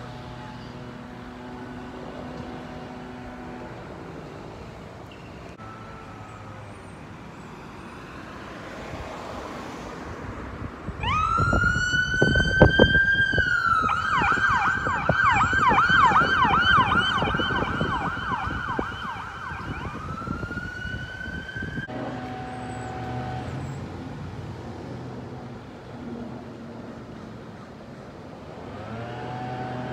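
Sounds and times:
truck engines rumbling: 0:00.0 - 0:29.9
fire truck siren wailing and yelping: 0:10.9 - 0:23.8.

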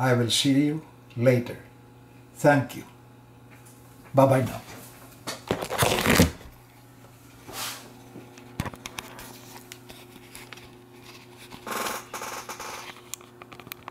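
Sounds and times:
camera scuffing: 0:09.0 - 0:11.6.

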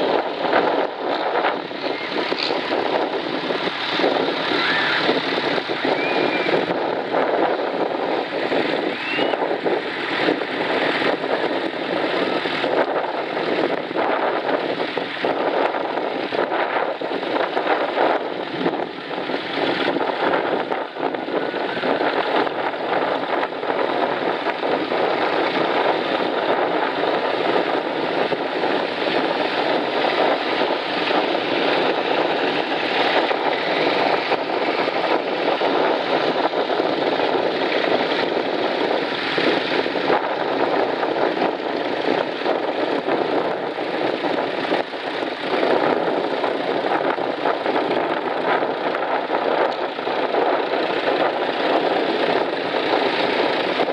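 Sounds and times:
tractor engines driving past: 0:00.0 - 0:53.9.

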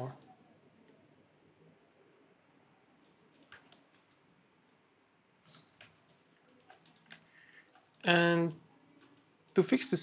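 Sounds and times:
computer mouse clicks: 0:03.0 - 0:09.6.

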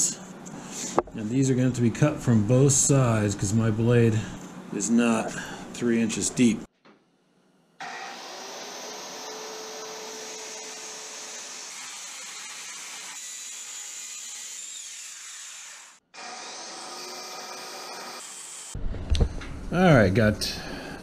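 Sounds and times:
circular saw cutting wood: 0:07.8 - 0:18.8.

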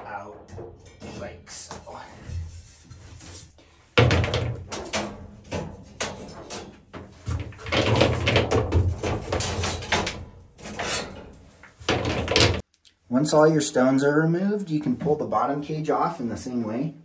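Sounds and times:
stones clacking against metal cage: 0:04.3 - 0:12.6.

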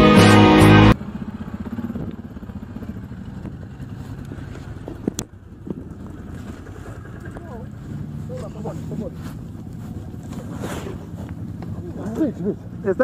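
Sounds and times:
background music: 0:00.0 - 0:01.0
quad bike engine idling: 0:00.2 - 0:13.0.

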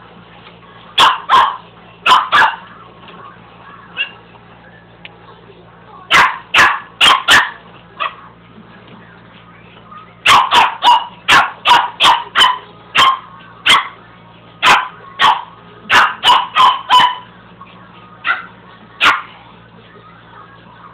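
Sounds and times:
small dog barking: 0:01.0 - 0:02.7, 0:04.0 - 0:04.2, 0:06.1 - 0:08.2, 0:10.2 - 0:14.0, 0:14.6 - 0:17.3, 0:18.2 - 0:19.3.

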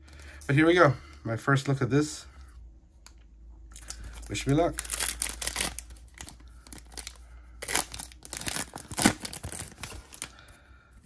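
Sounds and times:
foil wrapper crinkling and ripping: 0:03.8 - 0:10.4.

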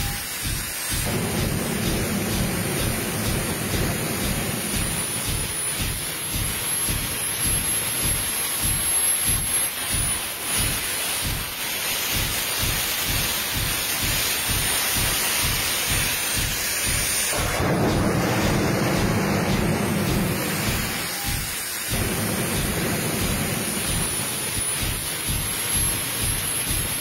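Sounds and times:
jet engine roaring: 0:01.0 - 0:08.6, 0:17.3 - 0:25.3.

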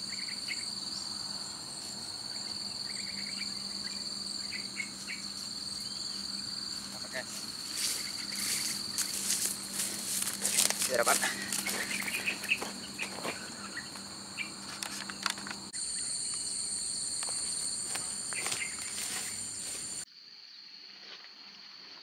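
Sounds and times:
insects droning: 0:00.0 - 0:22.0.

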